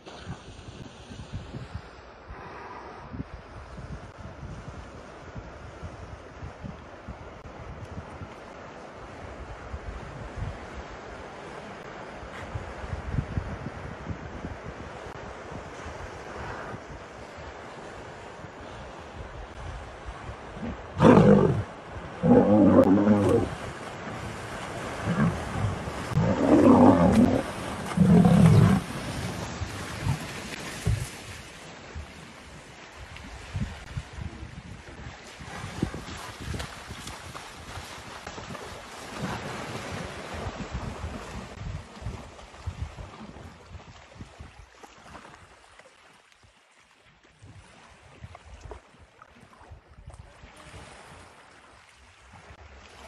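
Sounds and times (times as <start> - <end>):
wind gusting on microphone: 0.2 - 8.4, 12.3 - 44.6
water moving and lapping: 15.1 - 53.0
lion growling: 20.6 - 23.5, 25.0 - 28.9.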